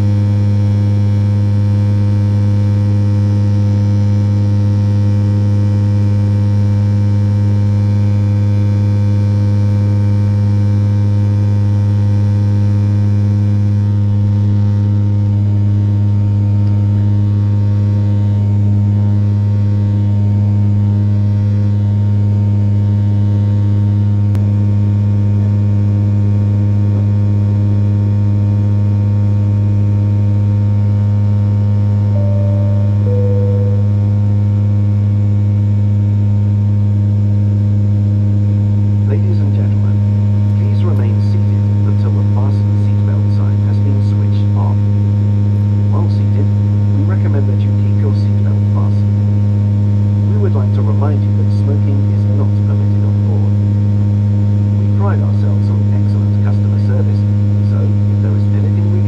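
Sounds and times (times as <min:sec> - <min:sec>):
aircraft cabin engine drone: 0:32.1 - 0:34.6
two-note cabin chime: 0:32.1 - 0:34.6.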